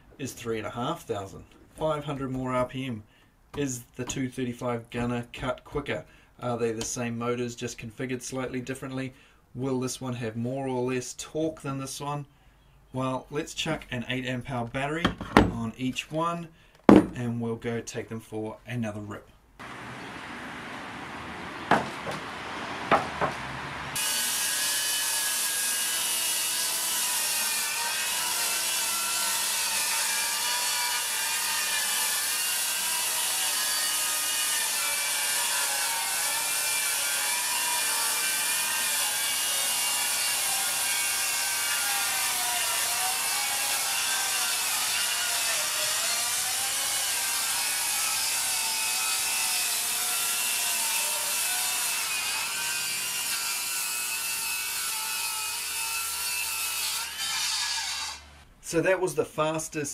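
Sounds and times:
sharp knocks: 16.9s - 17.2s, 21.7s - 23.4s
circular saw cutting wood: 19.6s - 58.4s.

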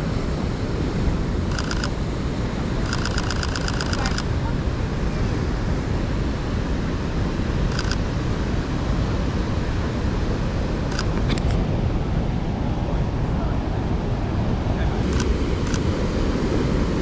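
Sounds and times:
low rumble of wind and surf: 0.0s - 17.0s
camera shutter clicks: 1.5s - 2.0s, 2.8s - 4.3s, 7.7s - 8.0s, 10.9s - 11.6s, 15.1s - 15.9s.

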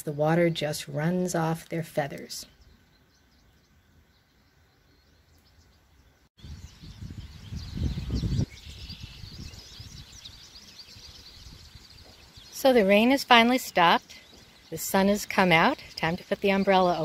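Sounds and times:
small birds chirping: 0.0s - 17.0s
wind rumble on microphone: 6.4s - 12.6s.

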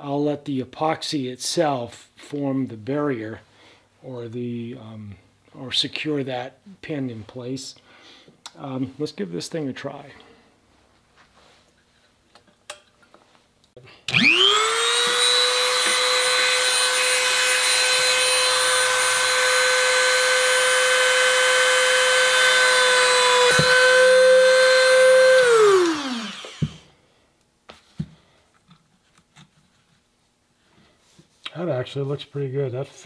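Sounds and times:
rotary tool high whine: 14.1s - 26.8s.

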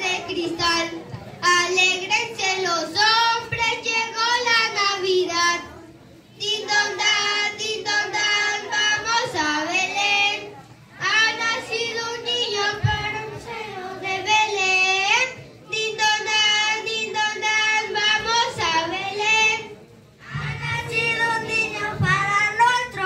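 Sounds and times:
children singing a carol: 0.0s - 23.0s.

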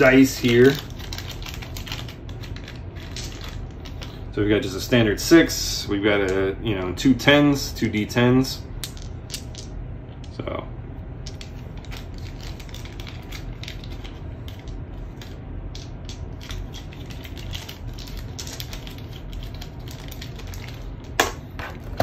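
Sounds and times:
small game pieces clicking: 0.3s - 4.2s, 8.8s - 9.7s, 11.3s - 20.8s.

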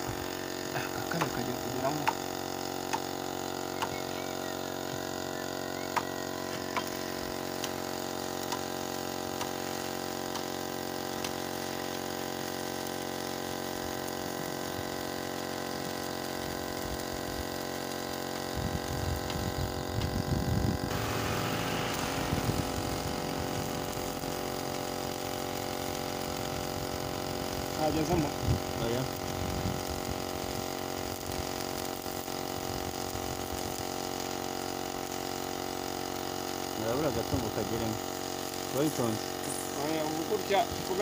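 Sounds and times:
air compressor humming: 0.0s - 41.0s
hiss: 20.8s - 29.1s.

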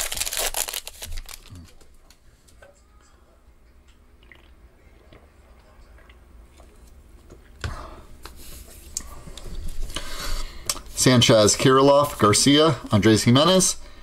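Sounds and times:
wrapper tearing and crinkling: 0.0s - 1.7s.

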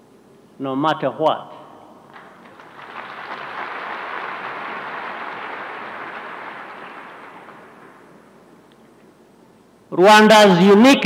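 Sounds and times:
crowd applauding and cheering: 2.2s - 8.5s.

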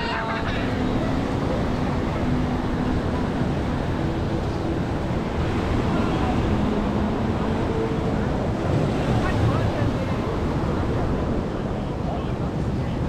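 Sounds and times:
surf washing in: 0.0s - 13.0s
people's voices: 5.4s - 13.0s.

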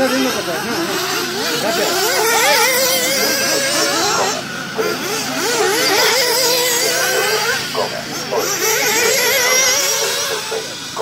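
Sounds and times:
rc car engines whining: 0.0s - 11.0s.

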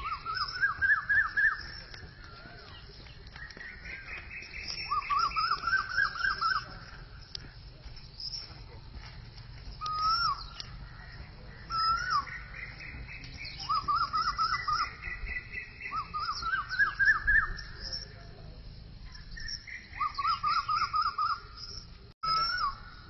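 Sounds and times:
bird rapid chirping: 0.0s - 8.8s, 9.7s - 18.3s, 19.0s - 22.8s
bird whistled phrase: 4.6s - 6.7s, 9.8s - 10.6s, 11.7s - 12.4s, 13.4s - 17.8s, 19.4s - 21.5s, 22.2s - 22.8s.

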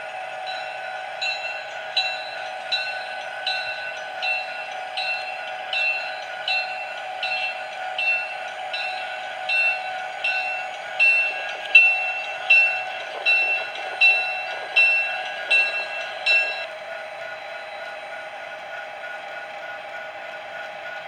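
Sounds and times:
model train motor and wheel hum: 0.0s - 21.0s
bell ringing: 0.5s - 16.7s.

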